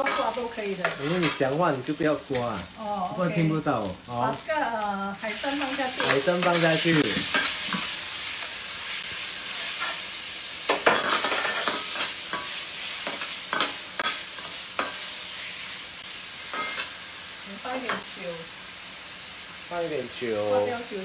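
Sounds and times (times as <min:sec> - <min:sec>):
food sizzling in a wok: 0:00.0 - 0:21.0
metal ladle scraping a wok: 0:10.7 - 0:15.0.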